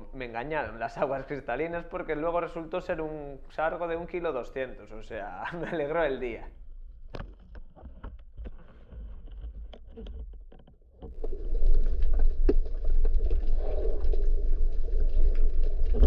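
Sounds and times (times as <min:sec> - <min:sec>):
faint underwater clicks and knocks: 0:06.8 - 0:16.0
rushing water and bubbles: 0:11.1 - 0:16.0.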